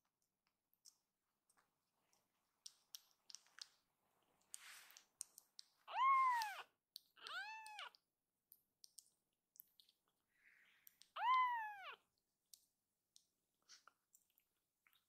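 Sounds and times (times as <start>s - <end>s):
kitten meowing: 5.9s - 8.0s, 11.1s - 12.0s.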